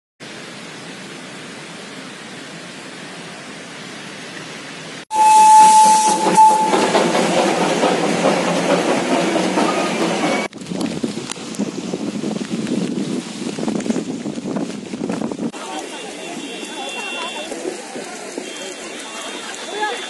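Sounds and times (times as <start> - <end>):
steam locomotive whistle: 5.1 - 7.9, 15.8 - 17.6
loud steam hissing: 5.1 - 10.5
locomotive clatter: 5.2 - 11.6, 15.2 - 20.0.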